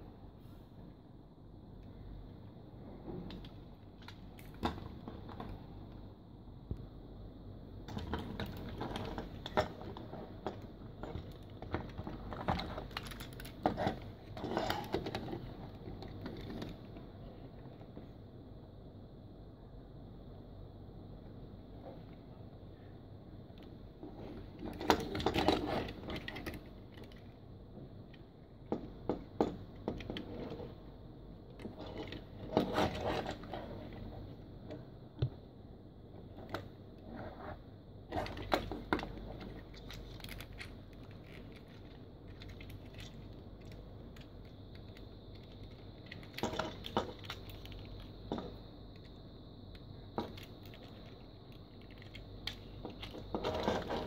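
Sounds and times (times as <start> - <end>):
plastic toy parts clicking and rattling: 7.8 - 16.9, 23.5 - 27.4, 28.0 - 30.6, 38.1 - 54.0.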